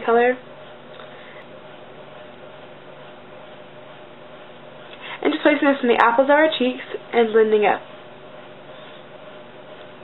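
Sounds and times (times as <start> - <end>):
faint hum: 0.0 - 10.0.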